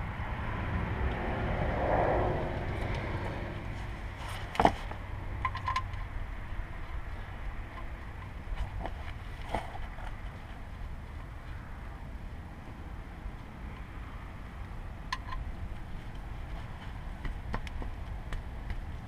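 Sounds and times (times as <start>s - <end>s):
low rumble: 0.0s - 4.2s
metal clicks and taps: 5.4s - 6.1s, 15.1s - 15.5s.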